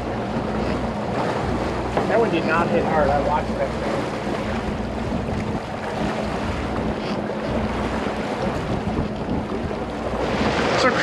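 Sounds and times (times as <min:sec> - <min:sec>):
boat engine humming: 0:00.0 - 0:11.0
water washing past hull: 0:00.0 - 0:11.0
wind noise on microphone: 0:04.5 - 0:10.8.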